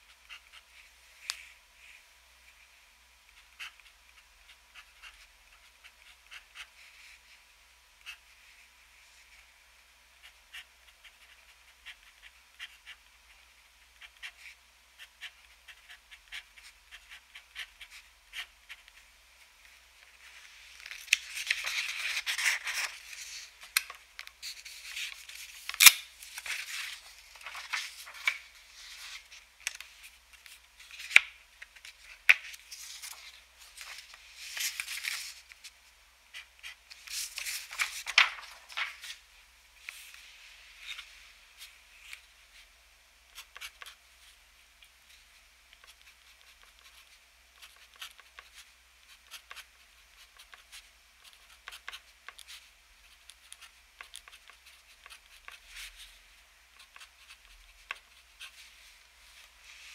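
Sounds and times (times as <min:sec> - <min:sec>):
paper rustling: 0:20.0 - 0:35.7, 0:36.9 - 0:39.2.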